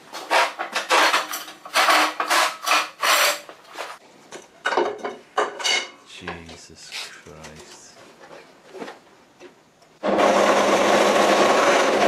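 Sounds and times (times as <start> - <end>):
rasping strokes on metal: 0.3 - 3.5.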